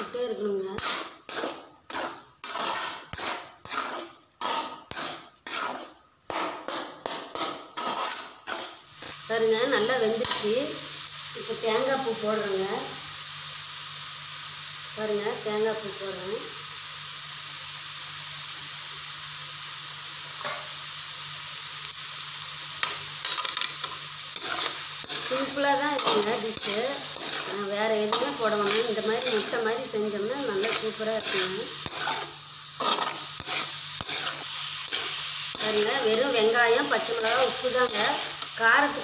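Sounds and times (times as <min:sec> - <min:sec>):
food sizzling in oil: 0:00.0 - 0:39.0
spatula scraping metal pan: 0:00.8 - 0:08.8, 0:24.4 - 0:38.1.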